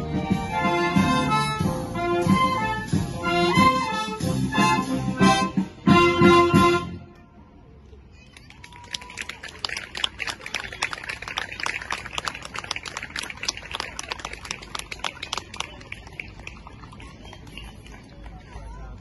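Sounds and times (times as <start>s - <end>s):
light applause: 7.8s - 19.0s.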